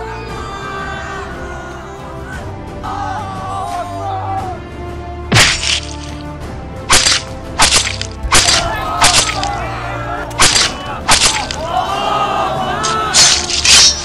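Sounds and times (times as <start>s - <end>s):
film soundtrack music: 0.0s - 14.0s
loud sharp cracks and hits: 5.3s - 6.1s, 6.9s - 9.6s, 10.4s - 11.6s.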